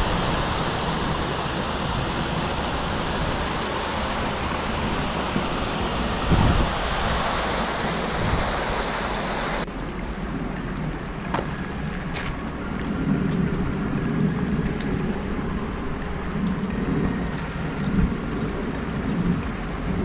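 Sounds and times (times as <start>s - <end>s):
stream rushing over rocks: 0.0s - 10.4s.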